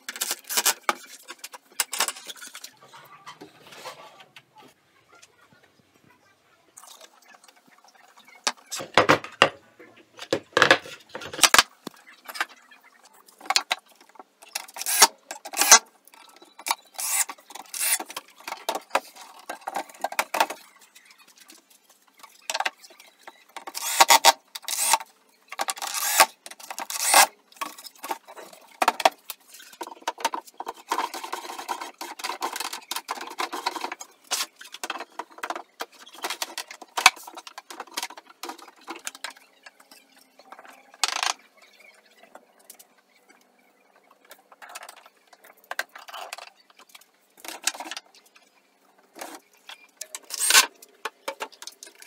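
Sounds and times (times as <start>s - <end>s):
wooden parts knocking on workbench: 8.8s - 9.6s
cordless drill driving screws: 23.8s - 25.0s, 25.9s - 26.3s.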